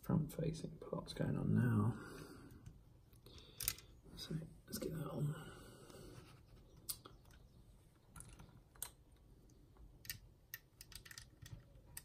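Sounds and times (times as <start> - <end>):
plastic pieces clicking: 3.3 - 3.9, 8.1 - 9.0, 9.8 - 12.0.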